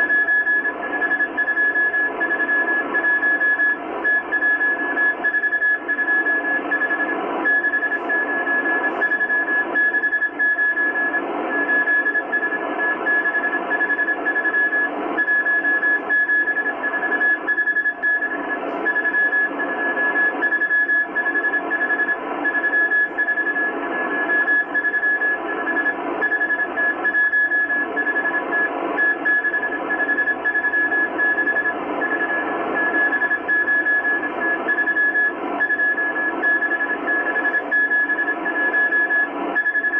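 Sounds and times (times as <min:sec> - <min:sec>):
morse code beeps: 0:00.0 - 0:39.9.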